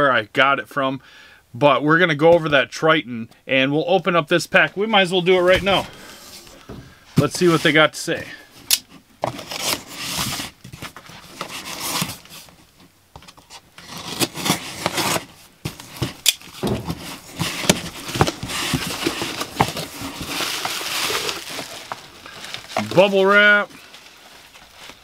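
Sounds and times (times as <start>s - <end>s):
knife slitting packing tape: 13.8s - 15.3s
bubble wrap crinkling: 13.8s - 25.0s.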